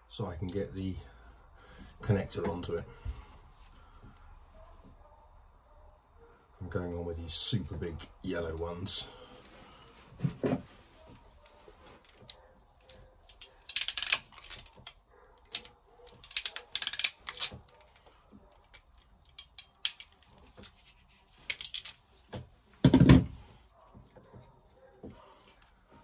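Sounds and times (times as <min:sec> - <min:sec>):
handling rustles: 0:09.1 - 0:26.0
crimping tool clicking: 0:12.2 - 0:20.3.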